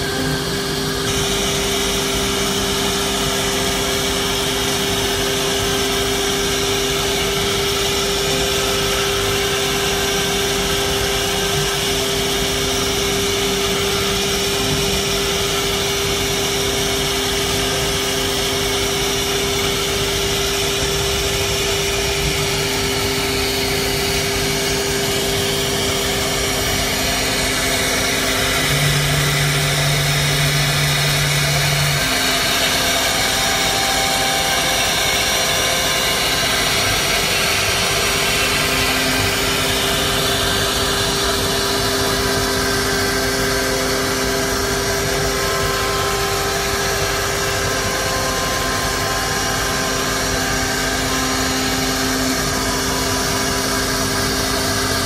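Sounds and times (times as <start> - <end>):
router spindles whining: 0.0 - 55.0
low hum: 21.1 - 55.0.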